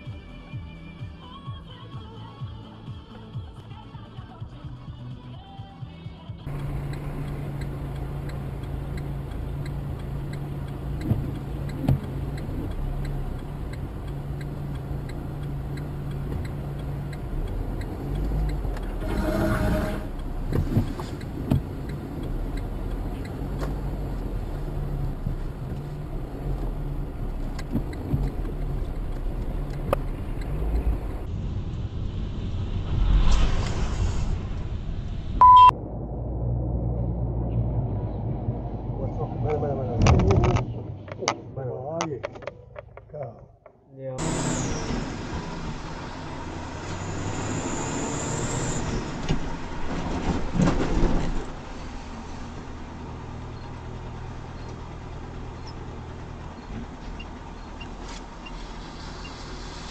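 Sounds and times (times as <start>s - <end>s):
car engine and road noise: 0.0s - 59.9s
clicks: 25.2s - 31.3s, 42.0s - 43.8s
short loud beep: 35.4s - 35.7s.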